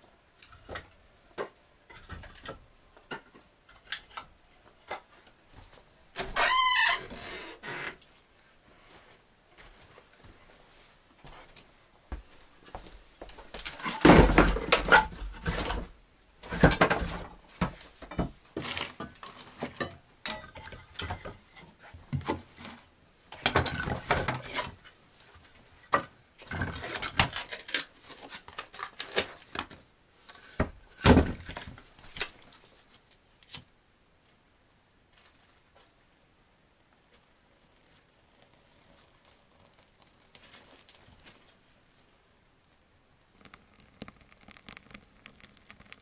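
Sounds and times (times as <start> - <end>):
knocks and rustles of handling: 7.9 - 33.7, 37.1 - 42.8.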